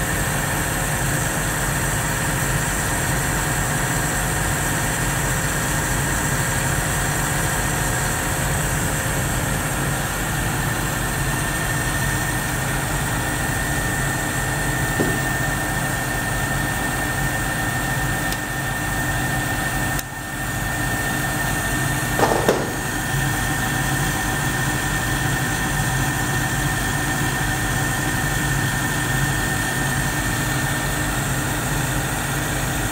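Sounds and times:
lathe motor hum and whine: 0.0 - 32.9
short knock: 15.0 - 15.4, 22.2 - 22.9.

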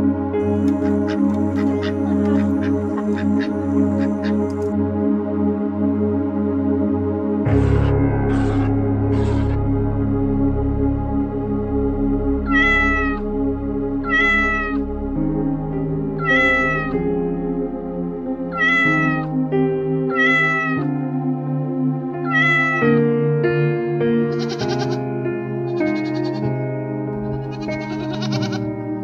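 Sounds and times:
soft background music: 0.0 - 29.0
cat meowing: 0.8 - 4.4, 12.5 - 13.2, 14.0 - 14.8, 16.2 - 17.0, 18.5 - 19.3, 20.1 - 20.9, 22.2 - 23.0, 24.3 - 25.0, 25.8 - 26.5, 27.4 - 28.6.

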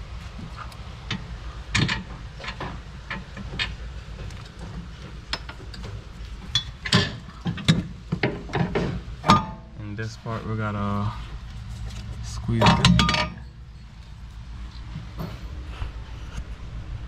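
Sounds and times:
steady low hum: 0.0 - 17.0
tools and metal parts knocking: 1.1 - 9.7, 12.5 - 14.0.

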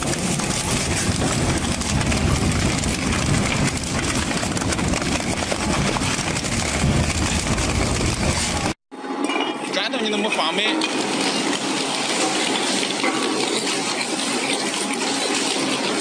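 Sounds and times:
metal and rubber crunching: 0.0 - 8.8
shredder grinding: 0.0 - 8.8, 10.8 - 16.0.

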